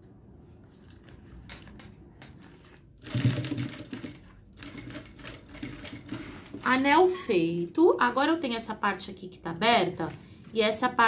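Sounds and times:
sewing machine stitching: 0:03.0 - 0:06.7.

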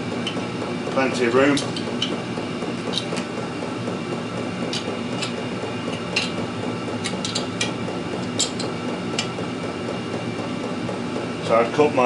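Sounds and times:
steady background hum: 0:00.0 - 0:12.0
spanner clicking on bolts: 0:00.2 - 0:00.5, 0:01.5 - 0:02.2, 0:02.8 - 0:03.4, 0:04.7 - 0:06.4, 0:07.0 - 0:09.4.

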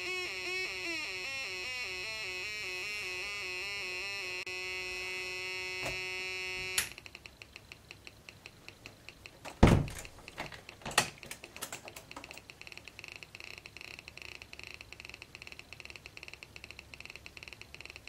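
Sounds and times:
buzzy electronic tone: 0:00.0 - 0:06.9
rapid electronic clicks: 0:06.8 - 0:10.8, 0:11.4 - 0:18.0
loud knocks: 0:09.6 - 0:10.0.

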